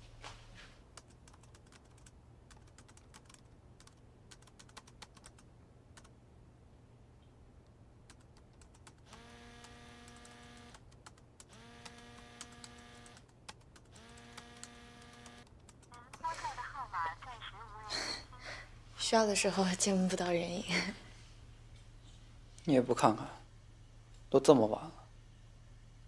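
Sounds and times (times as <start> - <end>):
laptop keyboard typing: 1.0 - 6.1, 8.1 - 16.7.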